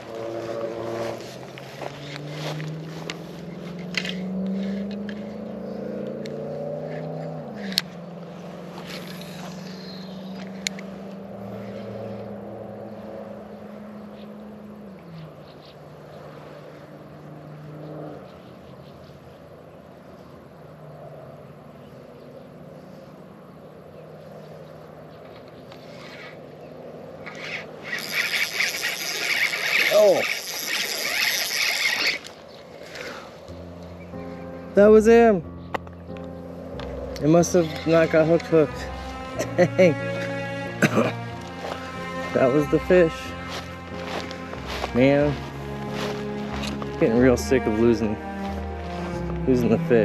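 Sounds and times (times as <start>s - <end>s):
engine drone: 0.0s - 19.4s, 22.8s - 50.0s
sharp clicks: 3.8s - 5.2s.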